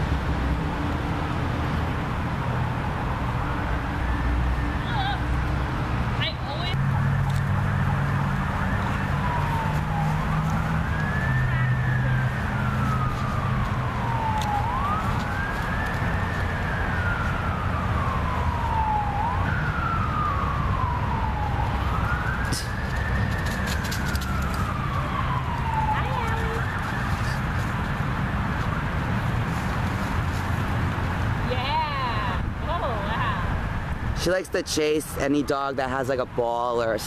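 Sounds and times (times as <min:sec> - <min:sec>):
siren wailing: 0:02.7 - 0:29.5.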